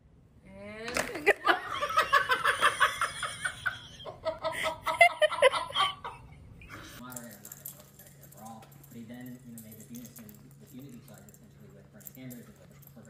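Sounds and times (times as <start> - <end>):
person laughing hard: 1.2 - 6.4.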